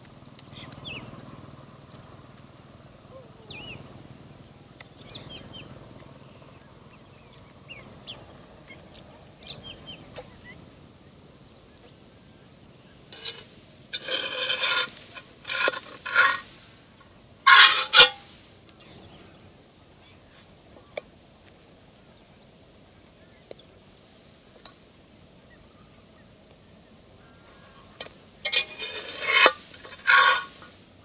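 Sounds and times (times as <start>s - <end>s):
small birds chirping: 0.2s - 13.4s, 18.7s - 21.1s.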